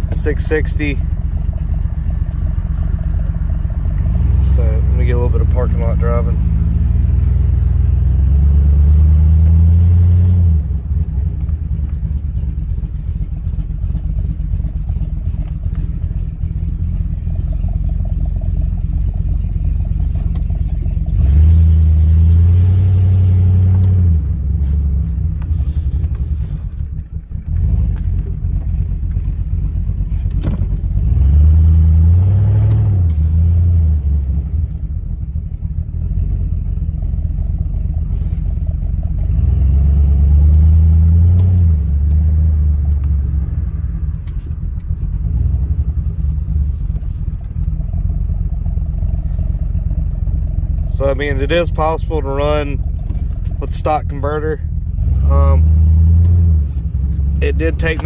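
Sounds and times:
pickup truck engine driving: 0.0s - 58.0s.

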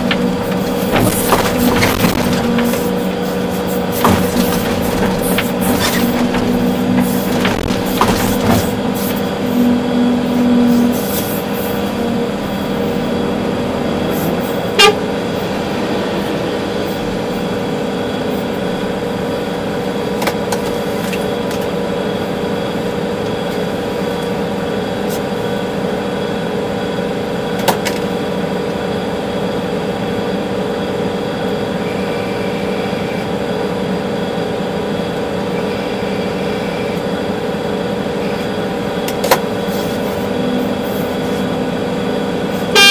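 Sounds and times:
excavator engine and hydraulics whine: 0.0s - 42.9s
short honk-like tone: 14.7s - 15.1s.

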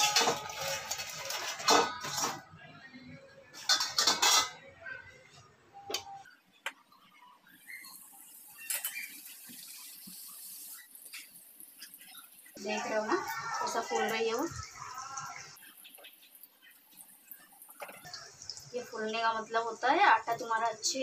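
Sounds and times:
bread frying in hot oil: 0.0s - 2.4s, 7.4s - 21.0s
utensils clattering against bowl: 0.0s - 2.5s, 3.6s - 4.6s.

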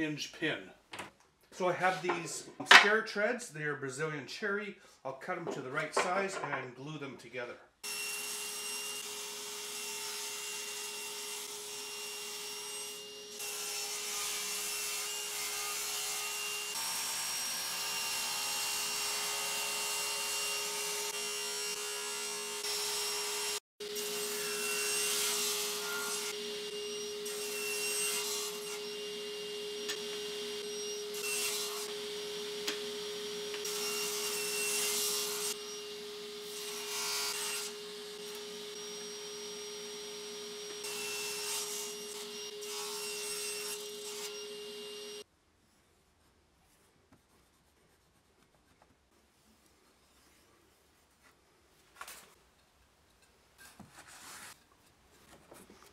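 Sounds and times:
saw blade cutting wood: 13.4s - 45.2s
table saw whining: 15.6s - 45.2s.

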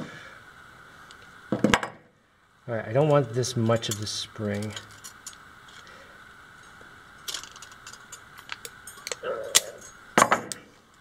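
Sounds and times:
pliers clicking on metal spring: 7.2s - 10.6s.

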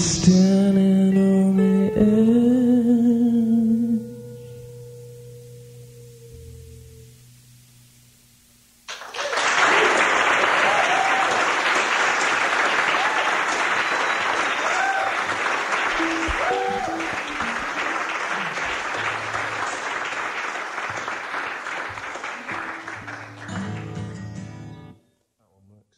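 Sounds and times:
audience applause: 8.9s - 24.5s
whistles from audience: 12.9s - 15.4s.

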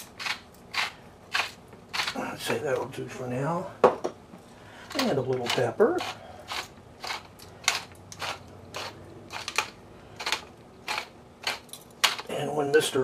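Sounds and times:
pepper grinder crunching: 0.0s - 2.7s, 4.8s - 12.3s.

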